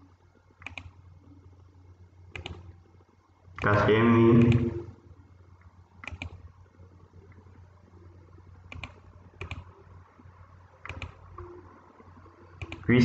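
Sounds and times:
faint low hum: 0:00.0 - 0:13.0
computer mouse clicking: 0:00.6 - 0:01.0, 0:02.3 - 0:02.7, 0:06.0 - 0:06.5, 0:08.7 - 0:09.7, 0:10.8 - 0:11.5, 0:12.6 - 0:12.9.

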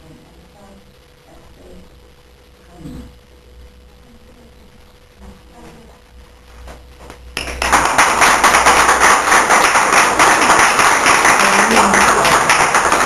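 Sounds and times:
audience applauding: 0:07.4 - 0:13.0.

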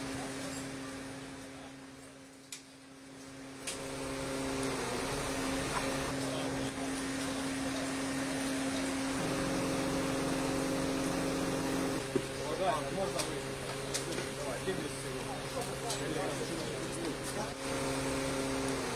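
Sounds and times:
truck engine humming: 0:03.4 - 0:18.9.

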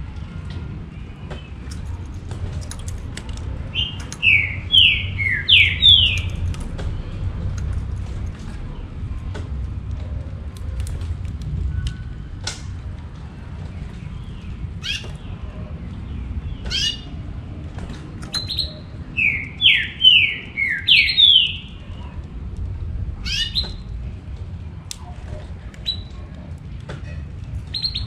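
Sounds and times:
bird chirping: 0:03.6 - 0:07.2, 0:13.6 - 0:17.3, 0:18.3 - 0:22.2, 0:23.2 - 0:23.9, 0:27.7 - 0:28.0
bird song whistled notes: 0:03.7 - 0:06.4, 0:18.3 - 0:21.8, 0:27.7 - 0:28.0.

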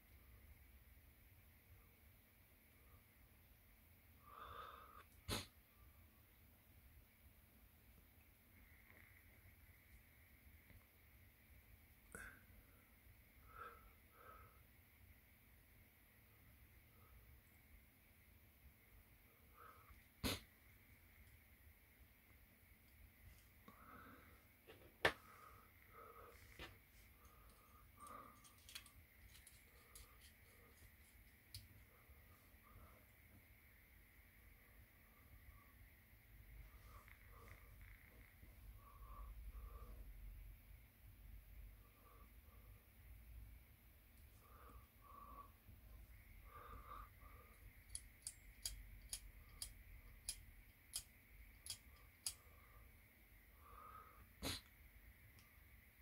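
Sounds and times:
small clicks of airbrush parts: 0:47.8 - 0:52.4.

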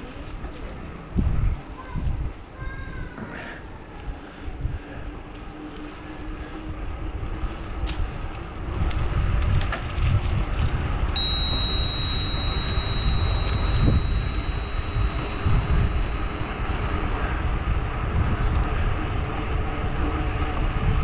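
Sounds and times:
bicycle tyre rumble on asphalt: 0:00.0 - 0:21.0
wind buffeting microphone: 0:00.0 - 0:21.0
steady high-pitched tone: 0:11.2 - 0:17.6.

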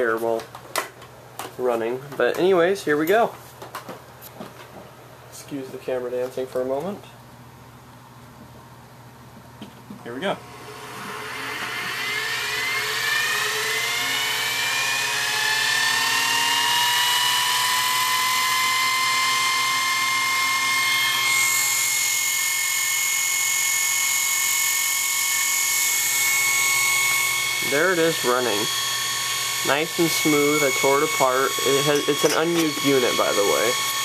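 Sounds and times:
dynamotor whining: 0:10.4 - 0:34.0.

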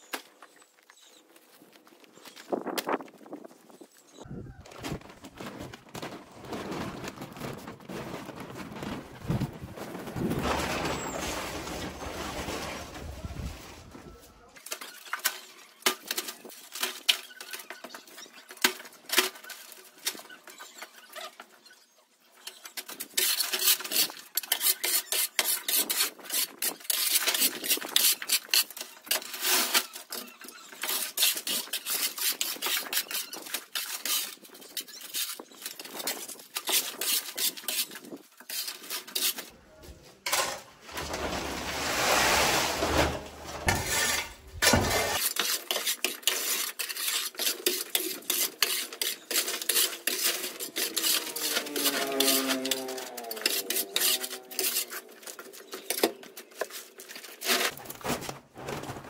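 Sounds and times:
hard objects clinking and scraping: 0:05.4 - 0:13.9, 0:22.4 - 0:39.6, 0:40.2 - 0:59.0.

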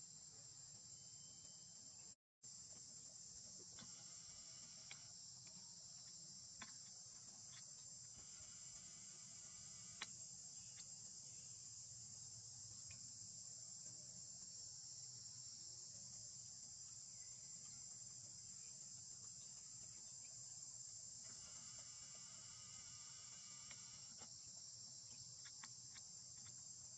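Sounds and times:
high-pitched insect chorus: 0:00.0 - 0:26.9.

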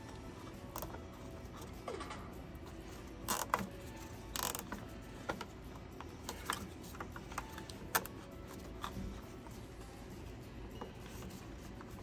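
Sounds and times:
cable tie ratcheting zips: 0:03.2 - 0:05.0.

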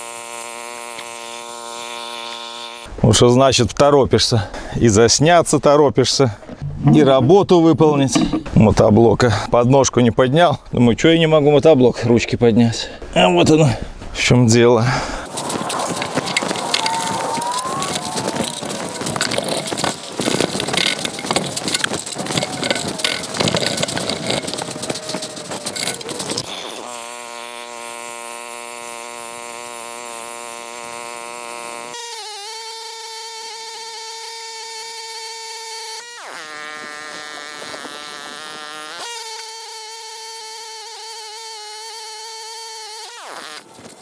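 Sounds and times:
tractor engine running under load: 0:15.3 - 0:26.8.

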